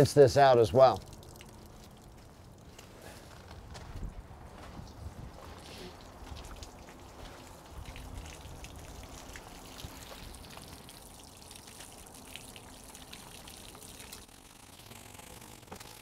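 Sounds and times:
water flushing and splashing: 5.6 - 16.0.

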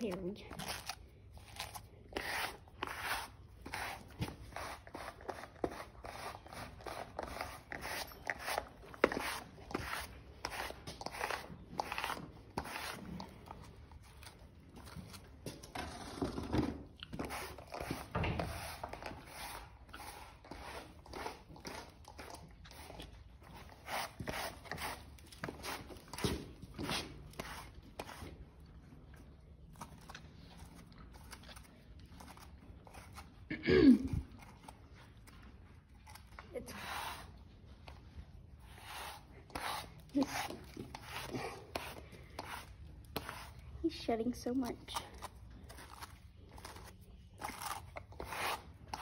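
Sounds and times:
brush scratching horse coat: 0.1 - 14.4, 17.1 - 28.4, 36.6 - 37.4, 38.6 - 44.3, 45.8 - 49.0.

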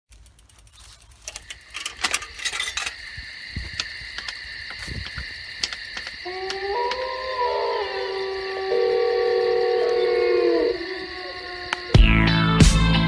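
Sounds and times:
bike parts rattling: 0.1 - 6.6
bike freewheel hub clicking: 0.1 - 7.4
steady high buzz: 0.1 - 13.0.

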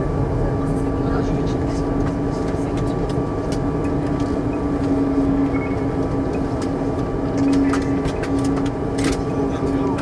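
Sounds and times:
airplane cabin engine rush: 0.0 - 10.0
constant low hum: 0.0 - 10.0.

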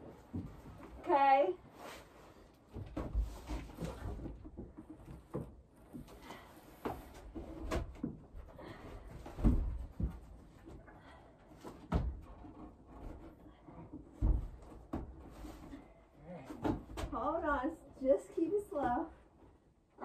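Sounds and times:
furniture bumping and thudding: 7.0 - 10.7.

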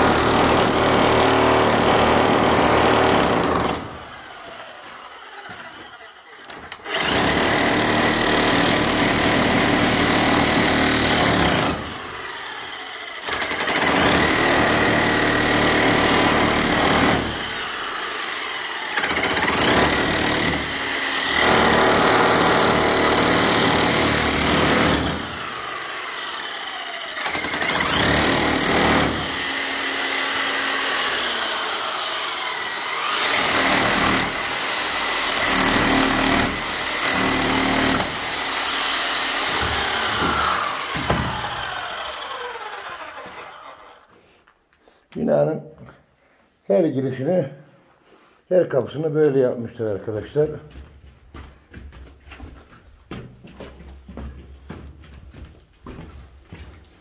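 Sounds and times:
rotary hammer breaking concrete: 6.5 - 12.3, 13.2 - 26.0, 27.1 - 31.3, 33.0 - 43.6.

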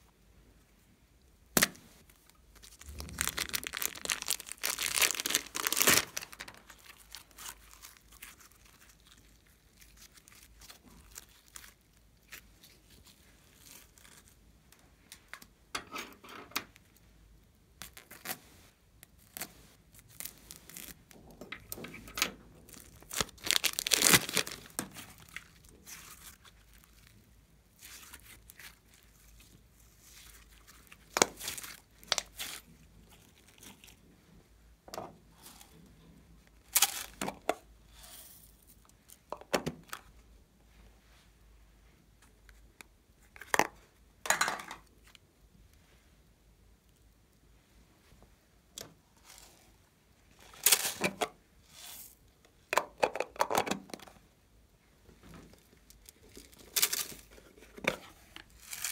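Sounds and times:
plastic bags crinkling: 2.2 - 14.3, 22.6 - 27.2, 55.5 - 57.9, 58.5 - 58.9
sticky slime squelching: 22.6 - 34.0.

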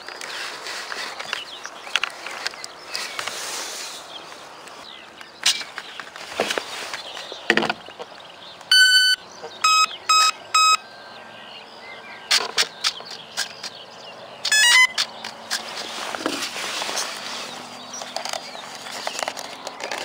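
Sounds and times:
handling clicks and knocks: 5.2 - 8.3, 17.9 - 20.0
motor start-up beeps: 8.7 - 11.1, 14.5 - 15.0.

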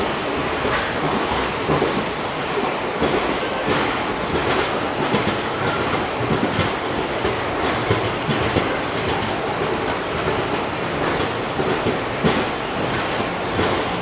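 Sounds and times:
train coaches rumbling: 0.0 - 14.0
wheels clattering over rail joints: 2.9 - 14.0.

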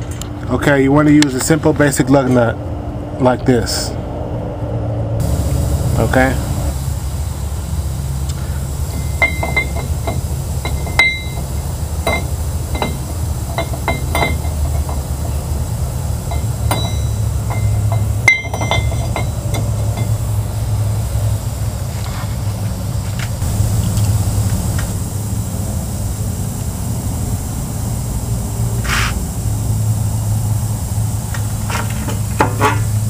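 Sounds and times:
low rumble: 3.9 - 13.5
metal clinks and knocks: 8.9 - 15.3, 16.3 - 20.2.

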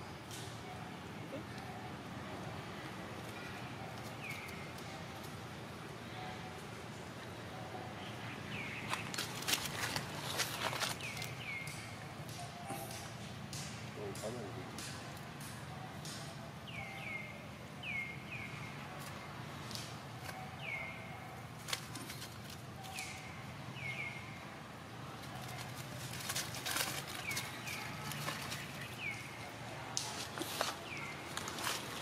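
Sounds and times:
scuffling and rustling: 8.5 - 11.8, 25.2 - 29.4, 30.0 - 32.0.

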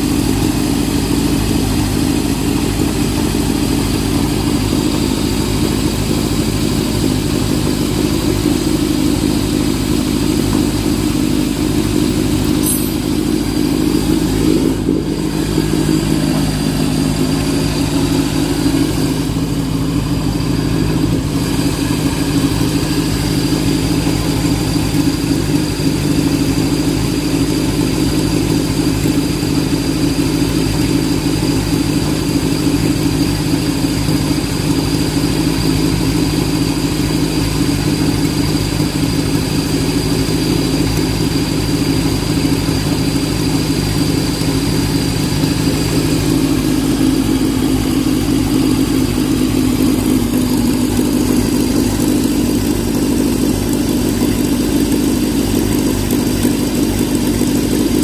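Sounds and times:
car engine running: 0.0 - 58.0.

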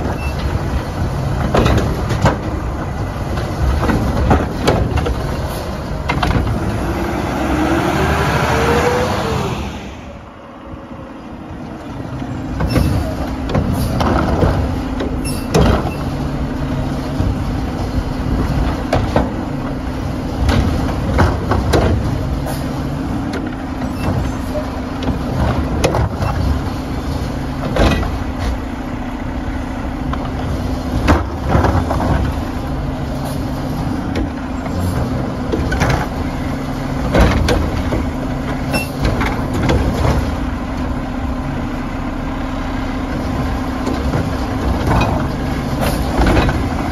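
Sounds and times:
garbage truck engine running: 0.0 - 46.9.

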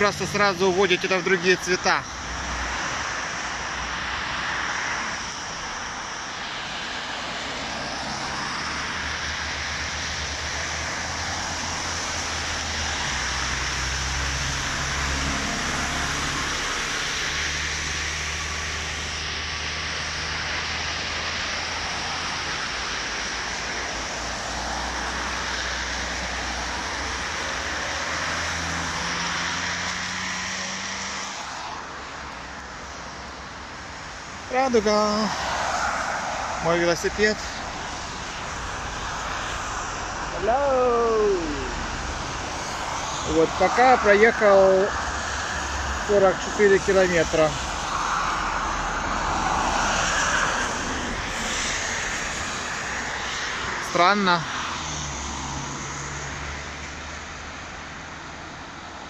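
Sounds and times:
passing vehicle engines humming: 0.0 - 59.0
road traffic noise: 0.0 - 59.0.

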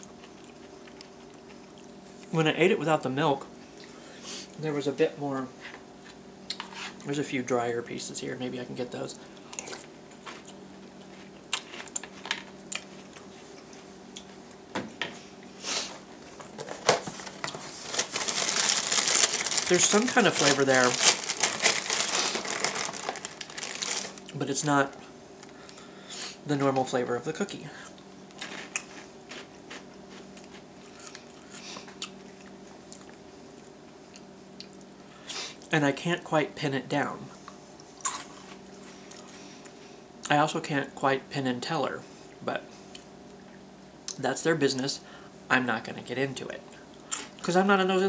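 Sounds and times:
low steady hum: 0.0 - 48.0
person chewing crunchy food: 9.4 - 14.4, 17.4 - 24.4, 27.8 - 34.8, 37.9 - 39.8.

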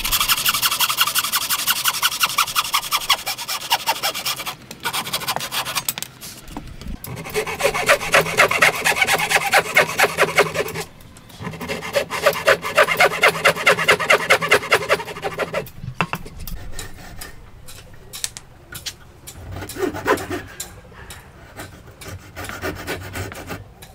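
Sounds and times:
hand saw cutting wood: 0.0 - 6.0, 7.1 - 15.7, 19.5 - 20.7, 21.5 - 23.7.

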